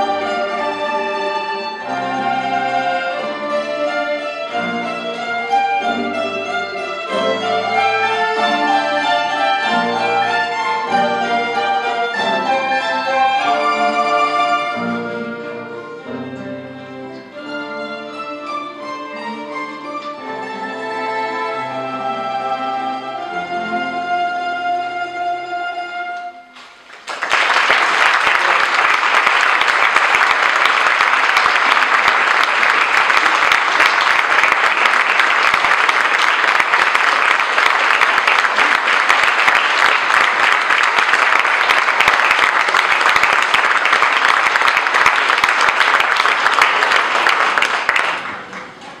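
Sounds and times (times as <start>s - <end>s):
audience applauding: 26.6s - 49.0s.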